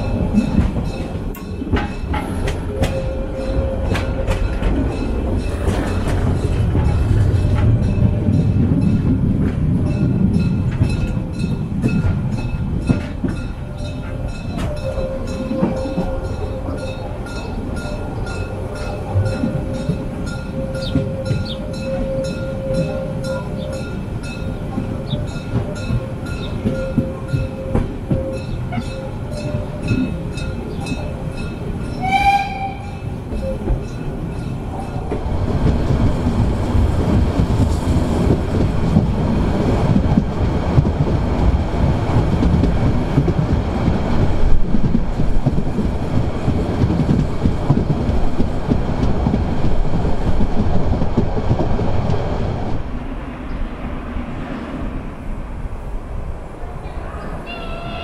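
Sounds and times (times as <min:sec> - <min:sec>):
train wheels clicking on rail joints: 0:00.0 - 0:54.5
moving train rumble: 0:00.0 - 0:58.0
steam whistle toot: 0:32.0 - 0:33.0.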